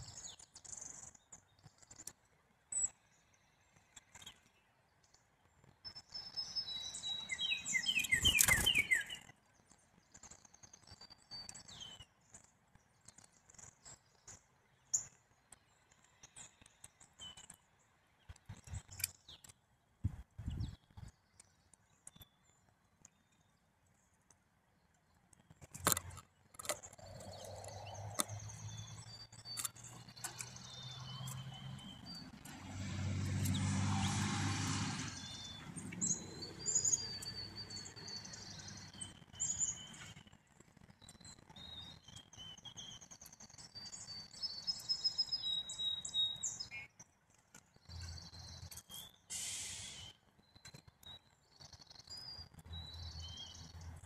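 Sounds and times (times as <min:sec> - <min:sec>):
songbirds chirping: 0:00.0 - 0:54.0.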